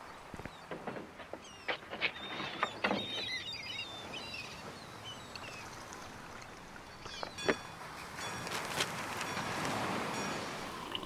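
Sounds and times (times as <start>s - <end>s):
small birds chirping: 0.0s - 7.5s.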